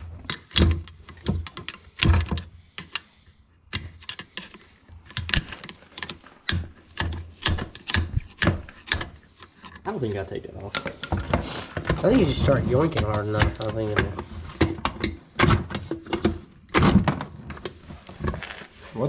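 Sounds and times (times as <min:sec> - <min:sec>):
sharp knocks and clacks on metal case: 0:10.7 - 0:18.4.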